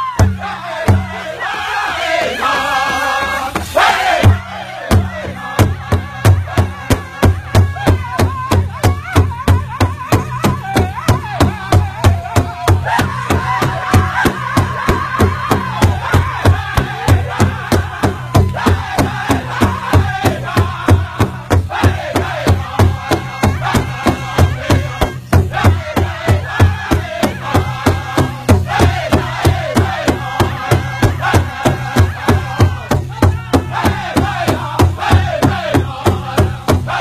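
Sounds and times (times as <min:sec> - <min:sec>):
large drum beating: 0:00.0 - 0:01.4, 0:02.9 - 0:37.0
men singing in high style: 0:00.0 - 0:37.0.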